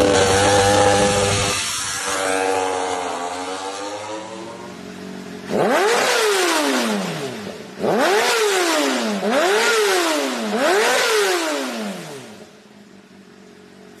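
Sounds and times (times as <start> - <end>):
motorcycle engine idling: 0.0 - 7.8, 11.7 - 14.0
motorcycle engine revving: 0.0 - 12.9.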